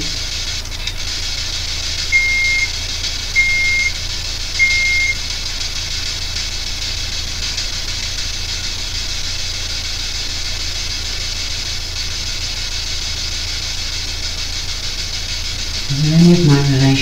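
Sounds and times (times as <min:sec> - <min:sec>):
electronic static hiss: 0:00.0 - 0:17.0
low hum: 0:06.6 - 0:17.0.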